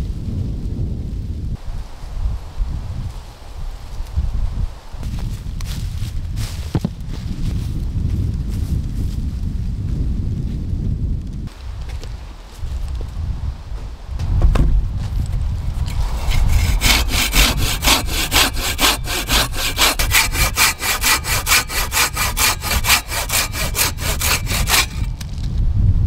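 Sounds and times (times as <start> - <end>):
hand saw cutting log: 15.9 - 25.2.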